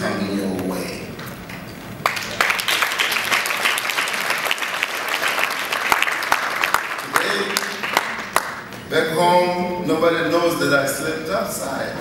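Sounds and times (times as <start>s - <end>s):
audience applauding: 2.0s - 8.8s.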